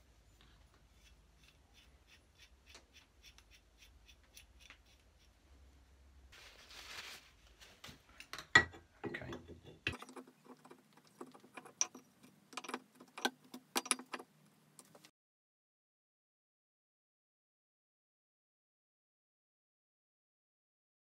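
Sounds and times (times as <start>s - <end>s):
metal parts clicking and knocking: 8.2s - 15.1s
metal rubbing: 9.2s - 14.3s.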